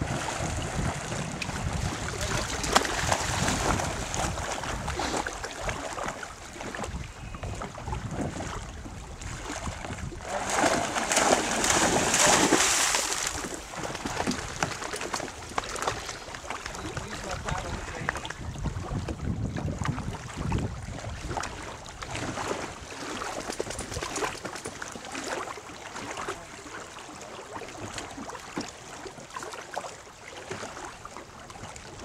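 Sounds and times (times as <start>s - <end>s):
swimmer splashing water: 0.0s - 18.3s
wind buffeting microphone: 0.0s - 24.4s.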